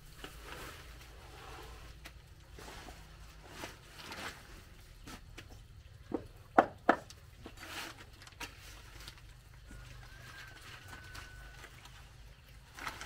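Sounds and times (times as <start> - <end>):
plastic sheeting rustling: 0.0 - 5.3, 10.1 - 13.0
rustling of leafy stalks: 0.0 - 6.0, 7.3 - 13.0.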